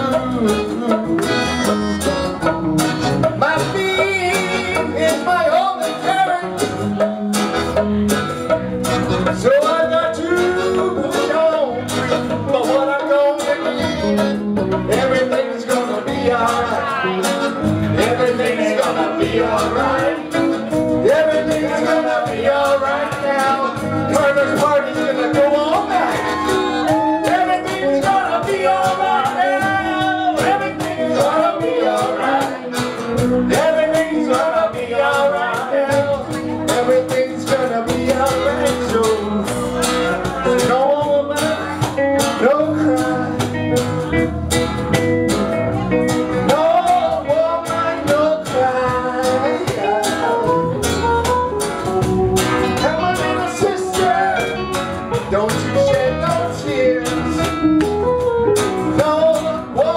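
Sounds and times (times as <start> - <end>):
singing voices: 0.0 - 44.3, 45.3 - 59.9
congas: 0.0 - 59.9
live reggae band playing: 0.0 - 59.9
saxophone: 13.6 - 14.8.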